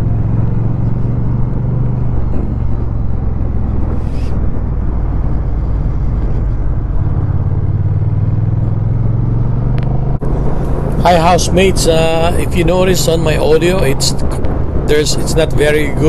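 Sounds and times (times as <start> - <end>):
motorcycle engine cruising: 0.0 - 16.0
wind and road noise: 0.0 - 16.0.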